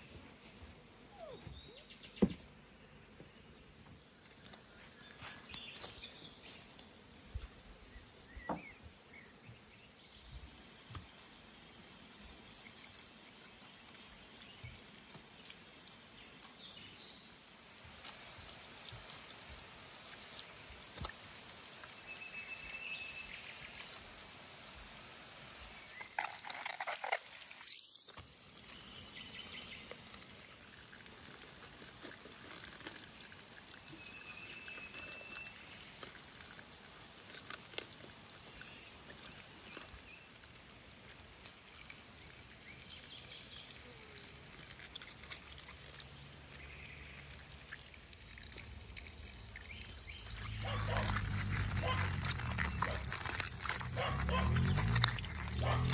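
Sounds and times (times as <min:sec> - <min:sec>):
water trickling from tap: 0:47.0 - 0:53.9.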